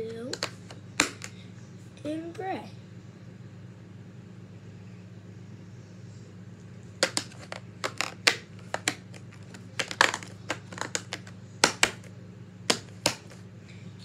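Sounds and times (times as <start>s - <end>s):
markers and pencils clattering: 0.1s - 1.3s, 7.0s - 12.1s.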